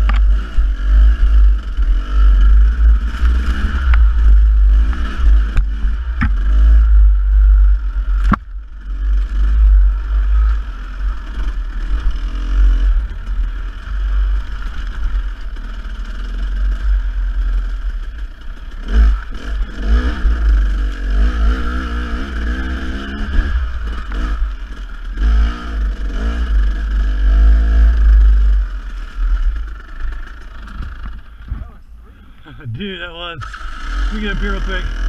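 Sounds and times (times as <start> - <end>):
dirt bike engine revving: 0.0 - 35.0.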